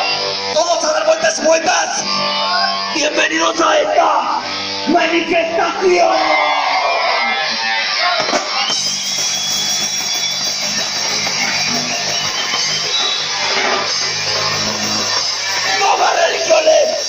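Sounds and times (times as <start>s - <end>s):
live punk band playing: 7.9s - 17.0s.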